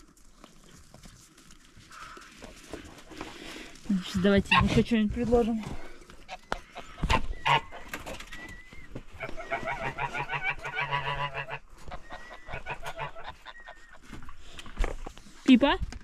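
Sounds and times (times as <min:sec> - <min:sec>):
geese cackling: 0:06.2 - 0:14.3.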